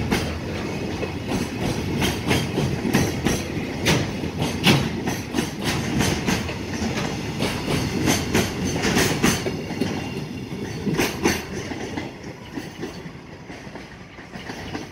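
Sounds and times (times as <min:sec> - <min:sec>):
freight train rolling past: 0:00.0 - 0:14.9
train wheels clattering over rail joints: 0:00.0 - 0:14.9.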